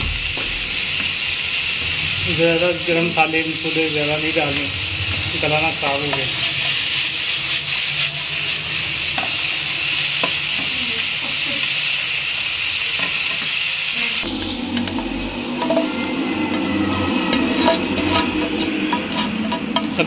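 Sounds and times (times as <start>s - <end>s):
vegetables sizzling in frying pan: 0.0s - 15.3s
spatula scraping pan: 14.3s - 20.0s.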